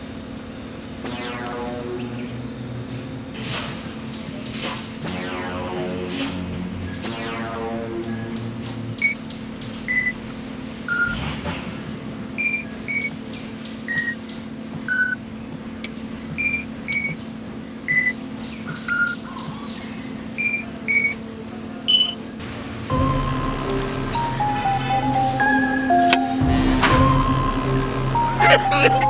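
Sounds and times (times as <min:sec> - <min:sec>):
steady low drone: 0:00.0 - 0:13.6, 0:14.4 - 0:29.0
short electronic beeps: 0:09.0 - 0:09.2, 0:09.9 - 0:10.2, 0:10.9 - 0:11.2, 0:20.4 - 0:21.2, 0:21.9 - 0:22.2, 0:22.9 - 0:29.0.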